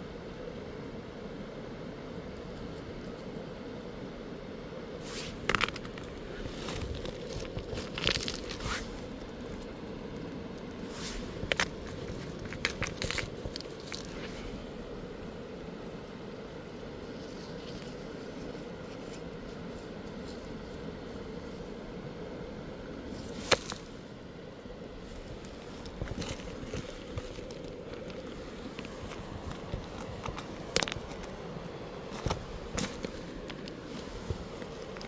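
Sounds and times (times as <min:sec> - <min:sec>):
stones crunching on gravel: 0:05.2 - 0:09.7, 0:10.8 - 0:14.7, 0:25.0 - 0:35.0
rocks clicking and knocking: 0:05.3 - 0:15.2, 0:23.2 - 0:23.9, 0:25.1 - 0:35.0.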